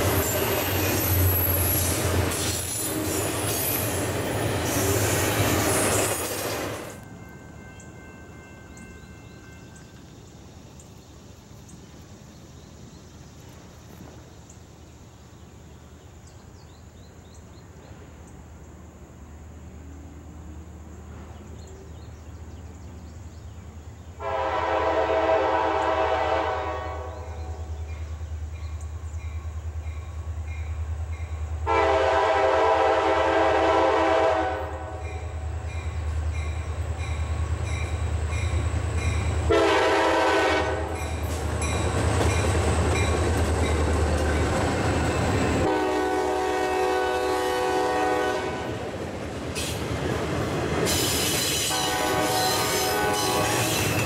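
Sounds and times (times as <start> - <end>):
train running noise: 0.0 - 54.0
locomotive air horn: 24.2 - 27.6, 31.6 - 35.2, 39.5 - 41.0, 45.5 - 48.8, 51.6 - 54.0
locomotive engine rumble: 28.1 - 47.1.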